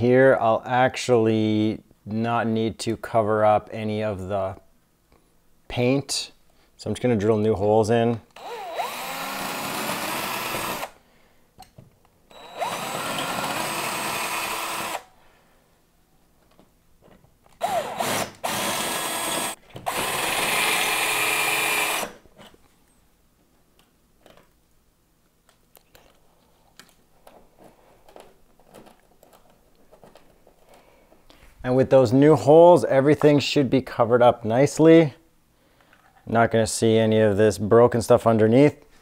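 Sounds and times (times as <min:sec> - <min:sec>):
cordless drill drilling: 0:08.4 - 0:11.0, 0:12.3 - 0:15.1, 0:17.6 - 0:22.2.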